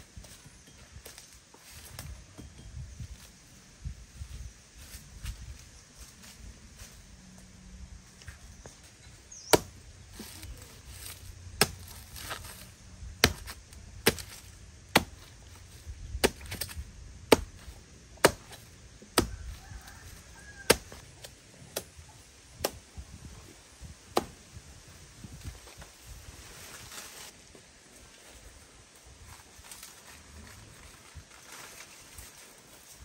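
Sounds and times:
blade chopping: 11.0 - 12.6, 13.2 - 15.3, 16.2 - 19.3.

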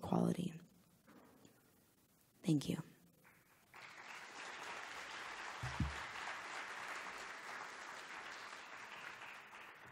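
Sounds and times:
audience applauding: 3.3 - 9.9
low thump: 5.6 - 6.0.

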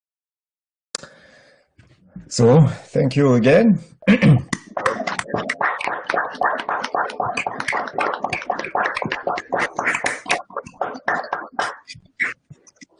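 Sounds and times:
people clapping: 4.5 - 12.0.

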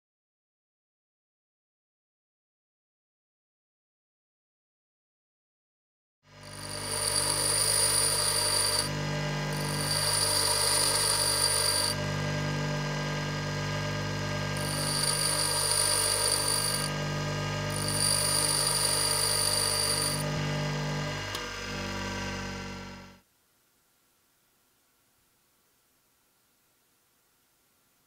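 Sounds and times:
bench grinder humming: 6.3 - 23.2
drill bit grinding hiss: 6.4 - 12.0, 14.6 - 17.0, 17.7 - 20.3.

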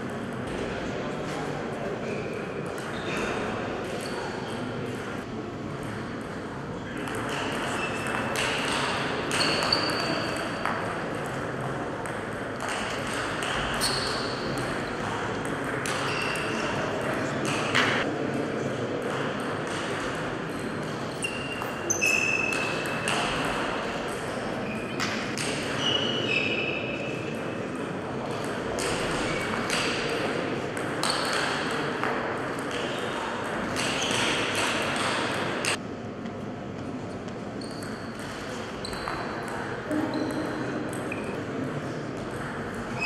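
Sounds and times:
shoes squeaking on floor: 7.7 - 8.1, 9.3 - 10.3, 13.8 - 14.4, 16.0 - 16.6, 21.1 - 23.0, 25.8 - 26.9, 37.6 - 38.1, 38.8 - 39.2.

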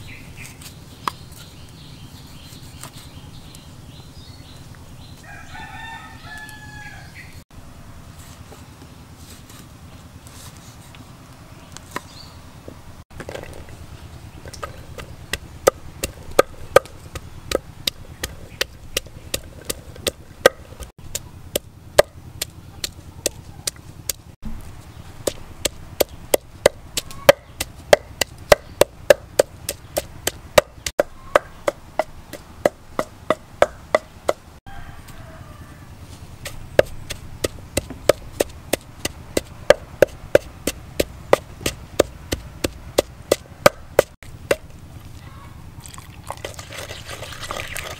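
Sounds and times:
pestle pounding in mortar: 14.4 - 24.4, 25.2 - 34.4, 36.4 - 44.7.

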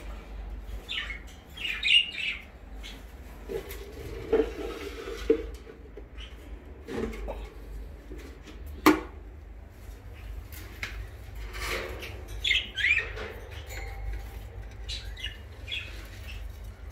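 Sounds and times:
budgerigars chirping: 0.8 - 3.1, 12.0 - 16.9.

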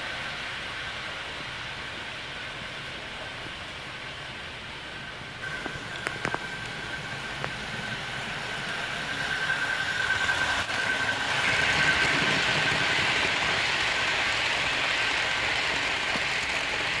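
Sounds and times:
model train rolling on track: 0.0 - 17.0
steady high whine: 3.8 - 17.0.

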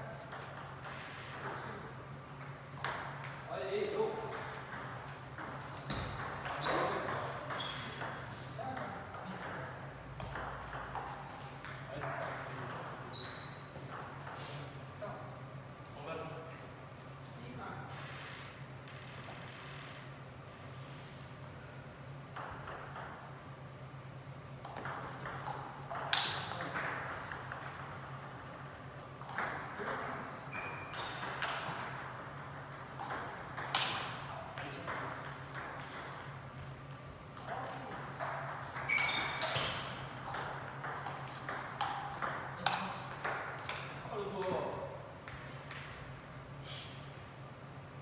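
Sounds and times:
table tennis ball hits: 2.3 - 14.4, 22.3 - 23.3, 24.6 - 46.0.

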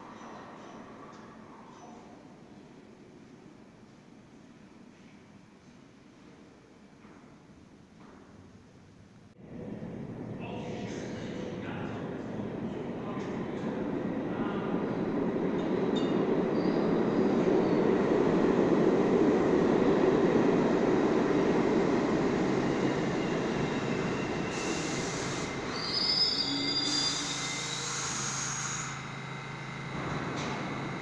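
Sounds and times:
brake and wheel squeals: 16.5 - 17.0, 24.0 - 29.0
wheels rumbling on rail: 29.0 - 31.0.

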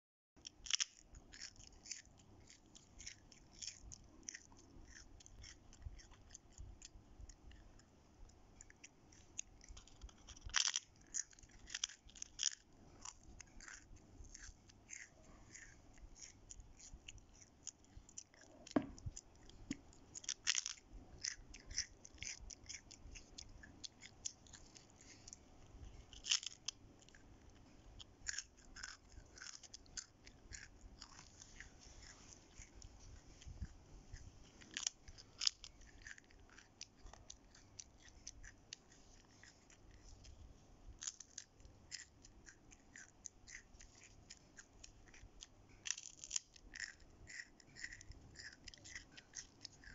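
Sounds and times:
child chewing crispy crackers: 0.4 - 49.9.

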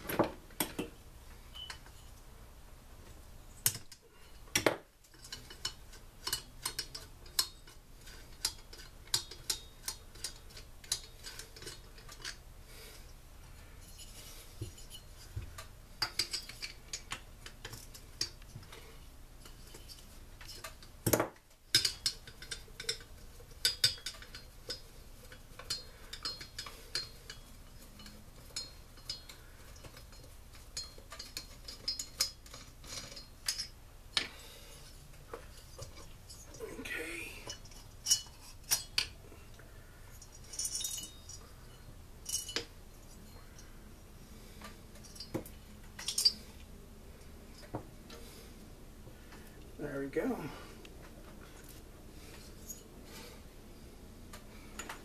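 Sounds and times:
hand tools clinking on metal: 4.6 - 12.4, 13.8 - 34.6, 40.1 - 43.7, 44.5 - 46.5
metal clatter: 19.4 - 34.3.

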